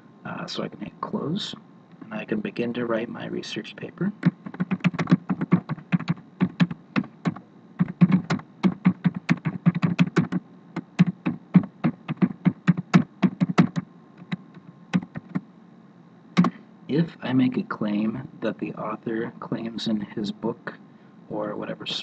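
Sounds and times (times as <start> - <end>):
computer keyboard typing: 4.2 - 15.4.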